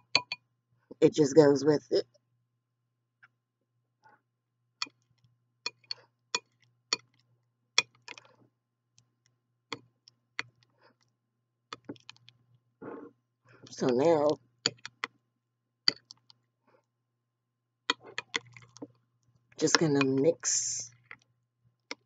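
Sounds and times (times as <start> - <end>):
spoon clinking against glass bowl: 0.0 - 0.4, 5.7 - 6.5.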